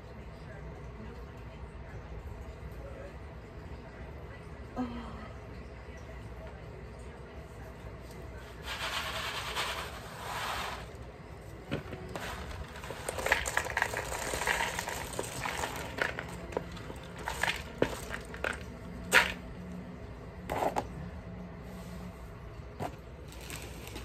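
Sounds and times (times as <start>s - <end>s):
peanut shells crackling and rattling: 11.7s - 19.4s.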